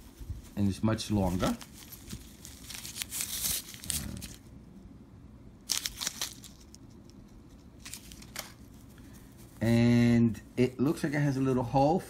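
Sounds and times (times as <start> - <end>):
fabric rustling and crinkling: 0.0 - 4.4, 5.7 - 9.6
paper packet crinkling: 0.0 - 4.5, 5.6 - 9.5.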